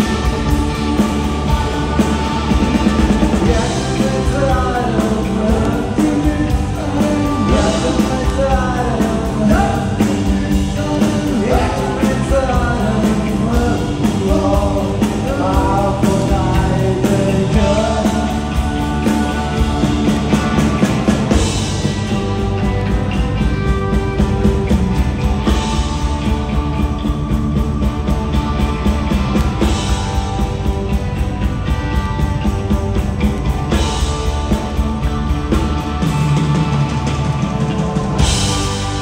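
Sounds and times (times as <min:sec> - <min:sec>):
rock band playing: 0:00.0 - 0:39.0
man singing: 0:01.2 - 0:21.5.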